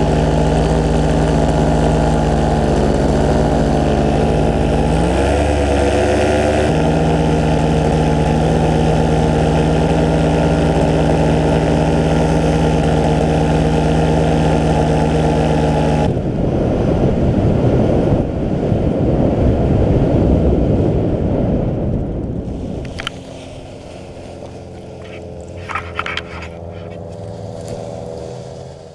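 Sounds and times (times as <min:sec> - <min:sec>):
paramotor engine and propeller: 0:00.0 - 0:28.9
wind rushing past microphone: 0:16.0 - 0:28.9.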